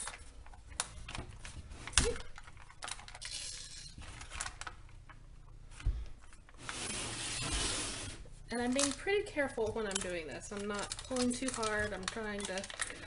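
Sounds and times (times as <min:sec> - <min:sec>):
freezer paper crinkling: 0:00.0 - 0:05.1, 0:09.8 - 0:13.0.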